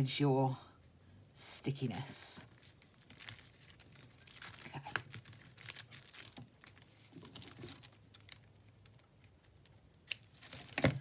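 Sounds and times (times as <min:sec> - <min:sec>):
paper and tape rustling: 0:02.4 - 0:11.0.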